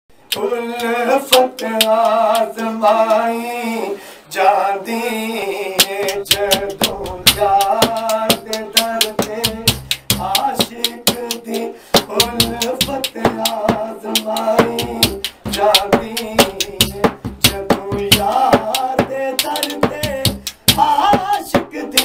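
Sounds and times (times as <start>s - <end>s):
man singing into a microphone: 0.3s - 22.0s
hand-beaten metal drum: 5.8s - 22.0s.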